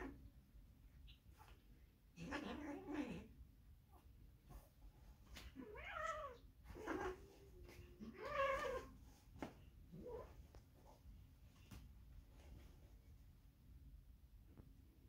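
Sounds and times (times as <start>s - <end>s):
cat meowing and yowling: 5.6s - 8.9s.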